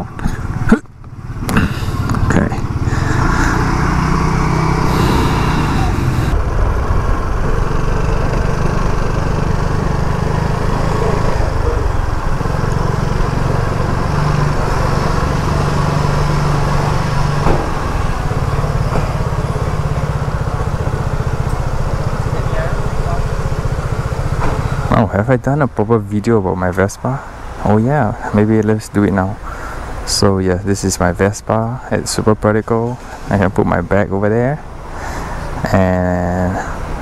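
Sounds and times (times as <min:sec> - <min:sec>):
scooter engine running: 0:00.0 - 0:25.0.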